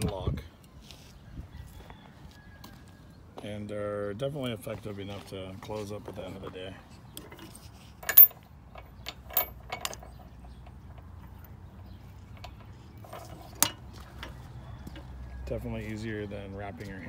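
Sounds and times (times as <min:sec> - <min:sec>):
padlock and chain clinking: 0:07.2 - 0:15.1.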